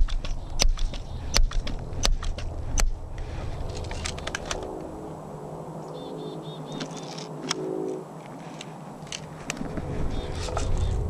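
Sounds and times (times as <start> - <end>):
low wind rumble: 0.0 - 11.0
small bird chirping: 5.9 - 7.2.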